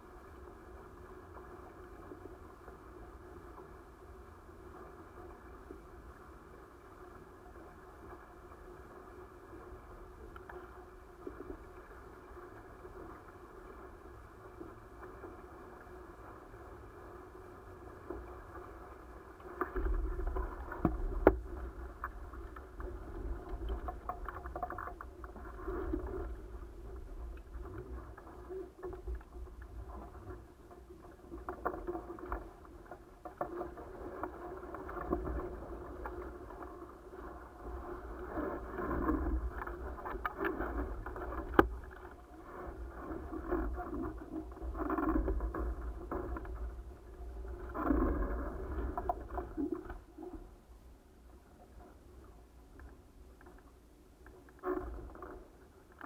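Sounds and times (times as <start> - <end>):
wind rumble on microphone: 7.1 - 50.7.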